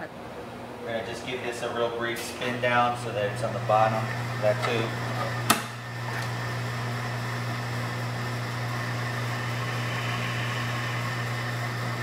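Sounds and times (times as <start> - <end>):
centrifuge motor hum: 2.4 - 12.0.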